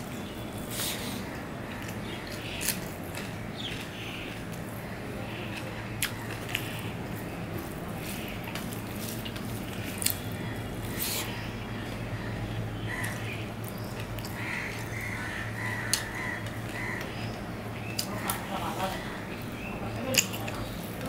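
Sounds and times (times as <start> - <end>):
steady low hum: 0.0 - 21.0
chewing: 5.4 - 11.4
bird calling: 10.2 - 19.9.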